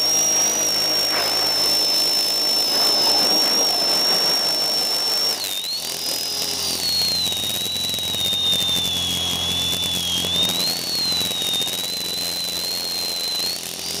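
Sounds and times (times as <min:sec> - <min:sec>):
rush of air: 0:00.0 - 0:06.4
drone motor whining: 0:00.0 - 0:14.0.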